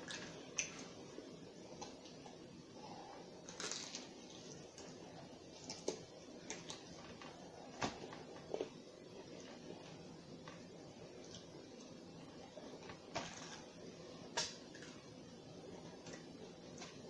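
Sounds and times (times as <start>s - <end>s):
crunchy fried chicken bitten: 3.5s - 4.2s.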